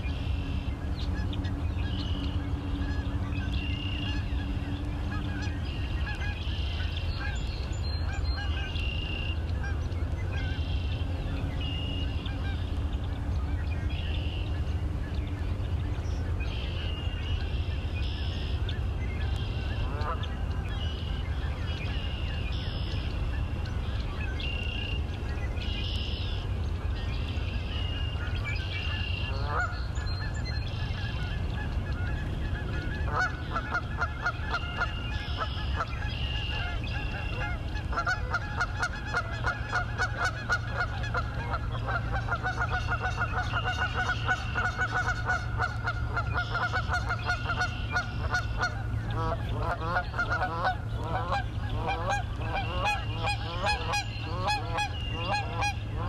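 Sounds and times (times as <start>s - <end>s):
steady low rumble: 0.0s - 56.0s
geese honking: 19.8s - 20.3s, 28.2s - 56.0s.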